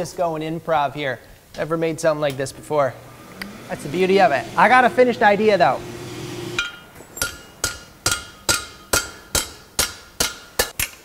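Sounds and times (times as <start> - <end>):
hammer striking metal on anvil: 5.8 - 10.9.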